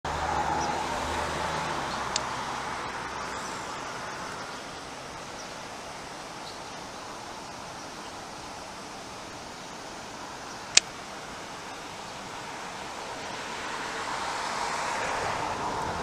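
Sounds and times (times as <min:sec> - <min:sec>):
vehicle passing: 0:00.0 - 0:05.0, 0:12.4 - 0:16.0
steady traffic hiss: 0:00.1 - 0:16.0
sharp click: 0:10.7 - 0:10.9.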